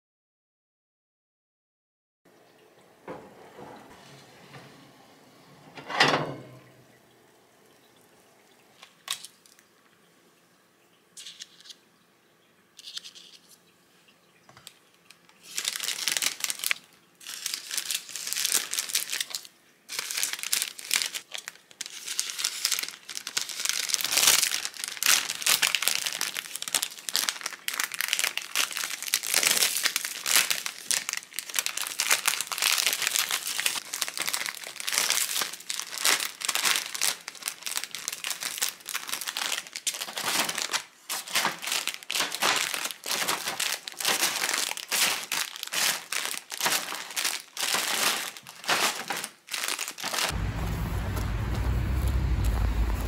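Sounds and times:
plastic bags crinkling: 0:08.8 - 0:09.7, 0:14.7 - 0:53.0.

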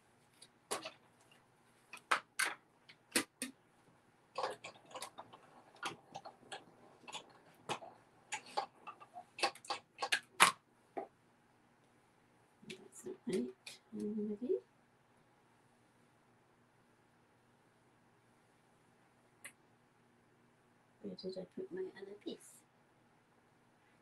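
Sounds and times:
craft tools clicking and knocking: 0:00.7 - 0:01.0, 0:02.0 - 0:03.6, 0:04.4 - 0:10.5.

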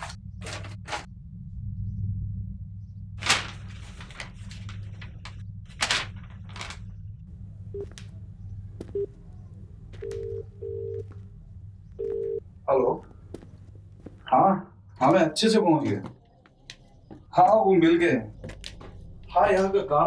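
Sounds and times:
paper rustling and crackling: 0:00.0 - 0:01.1, 0:03.2 - 0:07.0
steady low drone: 0:00.0 - 0:15.4
phone ringing: 0:09.9 - 0:11.2, 0:12.0 - 0:12.4.

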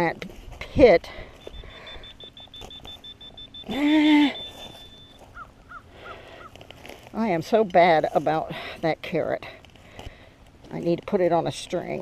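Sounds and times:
rapid high-pitched beeping: 0:01.4 - 0:05.5
crow cawing: 0:05.3 - 0:06.6.

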